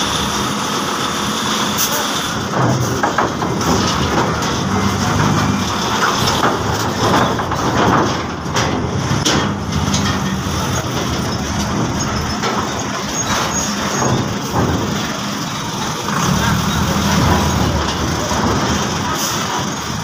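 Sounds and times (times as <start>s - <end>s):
diesel truck engine driving past: 8.8s - 20.0s.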